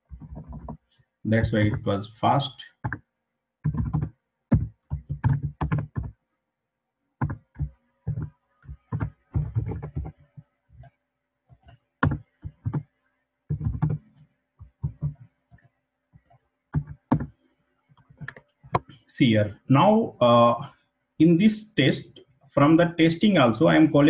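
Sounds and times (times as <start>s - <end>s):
typing on computer keyboard: 0.1s - 0.8s, 2.8s - 3.0s, 3.6s - 6.2s, 7.2s - 10.2s, 11.5s - 12.8s, 13.5s - 14.0s, 14.6s - 17.3s.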